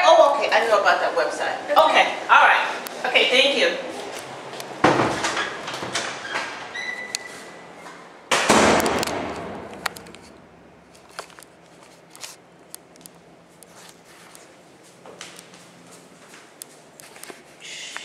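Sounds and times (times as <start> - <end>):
heavy door slamming shut: 4.8 - 6.7, 8.3 - 9.8
door squeak: 5.3 - 7.6.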